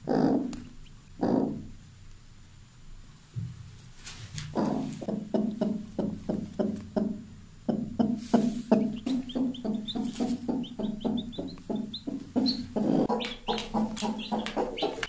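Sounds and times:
chick peeping: 4.5s - 15.0s
hen clucking: 4.5s - 15.0s.

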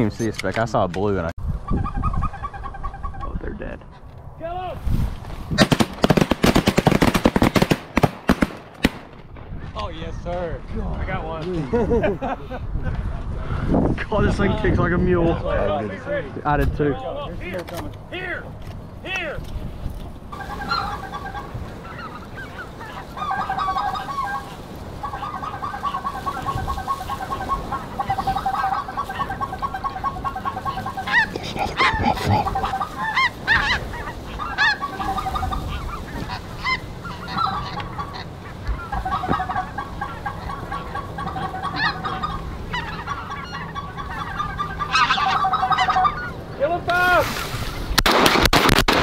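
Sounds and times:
geese honking: 1.6s - 3.5s, 20.3s - 46.8s.

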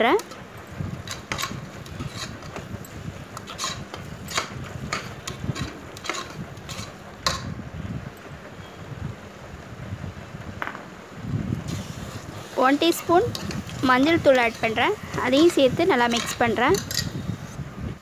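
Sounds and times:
metal spoon scraping a pot: 1.0s - 2.7s, 3.4s - 7.4s, 12.2s - 17.3s.

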